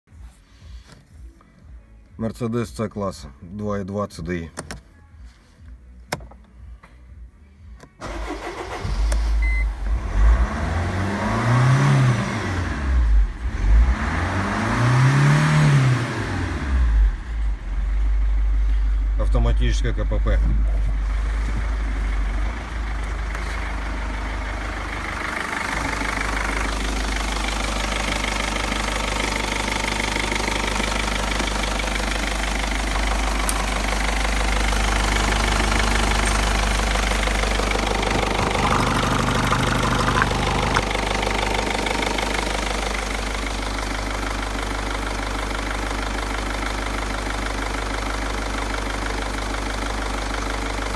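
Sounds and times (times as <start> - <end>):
diesel engine idling: 16.3 - 50.9.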